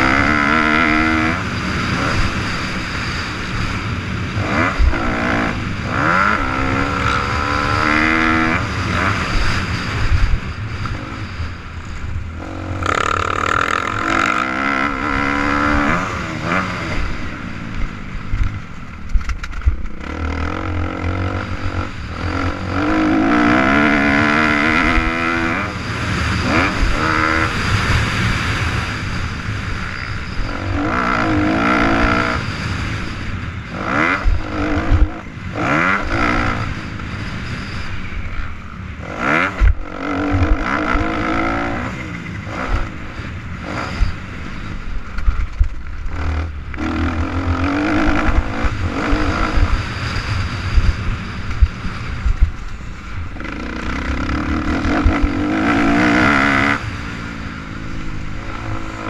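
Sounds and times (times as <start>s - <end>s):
dirt bike engine revving: 0.0s - 59.0s
wind rush: 0.0s - 59.0s.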